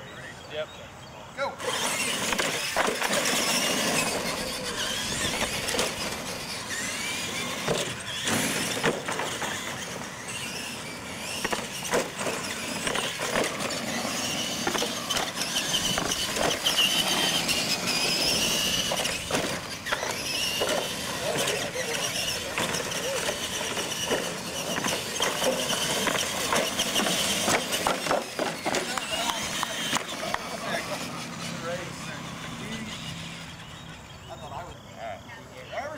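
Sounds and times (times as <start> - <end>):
toy truck motors whining: 1.4 - 35.9
toy trucks knocking on ramps: 22.1 - 30.5.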